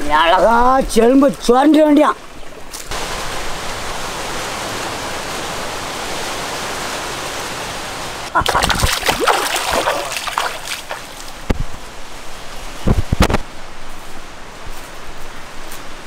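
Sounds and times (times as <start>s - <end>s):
river water flowing: 0.0s - 16.0s
splashing in water: 8.3s - 11.5s.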